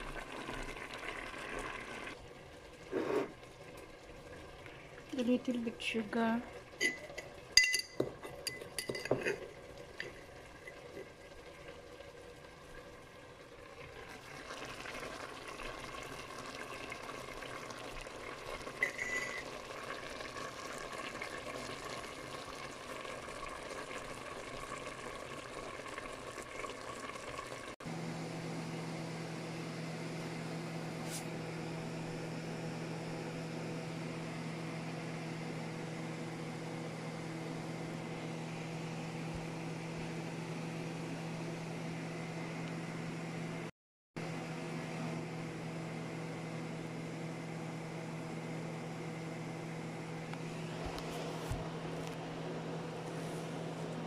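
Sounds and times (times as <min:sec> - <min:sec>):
pot simmering with hiss: 0:00.0 - 0:54.0
spoon scraping in glass jar: 0:06.8 - 0:09.5, 0:18.8 - 0:19.5.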